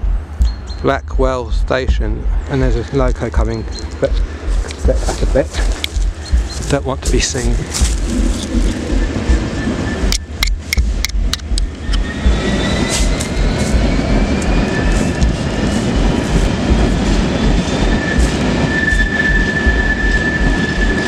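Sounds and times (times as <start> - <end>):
train wagons rumbling past: 0.0 - 21.0
thin high whine: 17.0 - 21.0.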